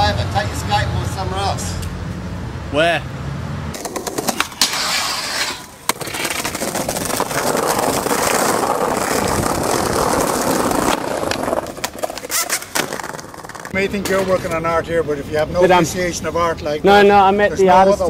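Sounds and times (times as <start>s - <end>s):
skateboard wheels rolling on pavement: 3.7s - 18.0s
skateboard clacks: 3.8s - 14.6s.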